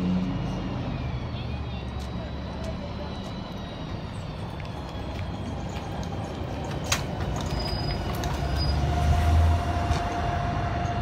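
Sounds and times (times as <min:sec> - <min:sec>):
bus engine rumbling: 0:00.0 - 0:11.0.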